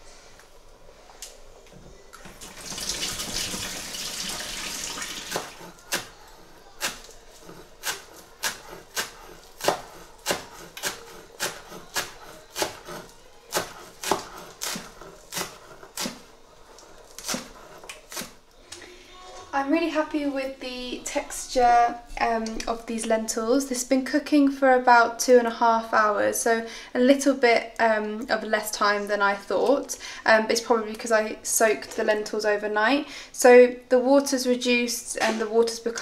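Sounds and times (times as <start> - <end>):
tap water running: 2.2 - 5.8
knife chopping on wooden board: 6.8 - 16.2.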